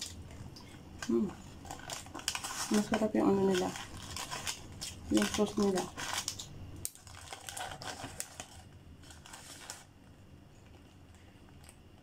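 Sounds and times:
foil lid and paper crinkling: 1.0s - 10.0s.

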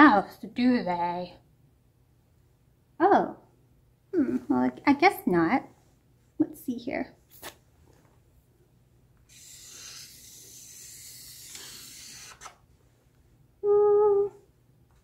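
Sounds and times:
woman humming: 4.2s - 4.5s, 13.6s - 14.5s
marker scratching on paper: 9.3s - 12.6s.

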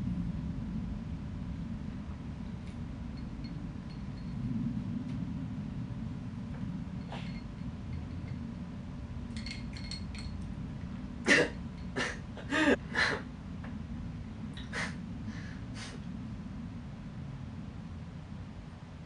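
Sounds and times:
man coughing: 11.3s - 13.2s.

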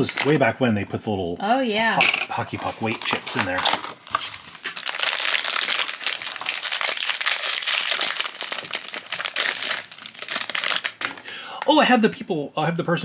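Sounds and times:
foil bag crinkling: 0.0s - 0.4s, 2.3s - 11.7s.

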